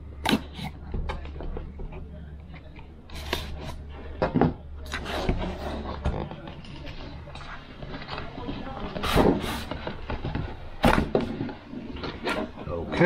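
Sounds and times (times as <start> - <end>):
knife scraping cardboard: 3.1 - 3.9, 4.9 - 6.1.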